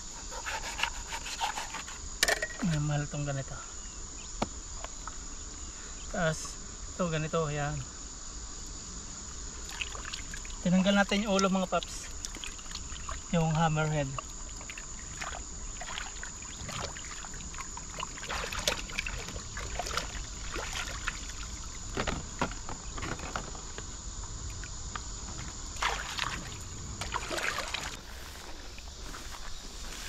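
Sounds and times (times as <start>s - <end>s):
high insect drone: 0.0s - 30.0s
water splashing and sloshing: 9.5s - 30.0s.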